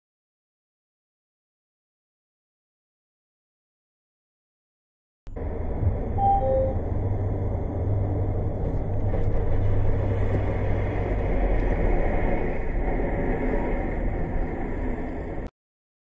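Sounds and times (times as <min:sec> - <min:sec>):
car driving at highway speed: 0:05.3 - 0:15.5
short falling tones: 0:05.8 - 0:07.4.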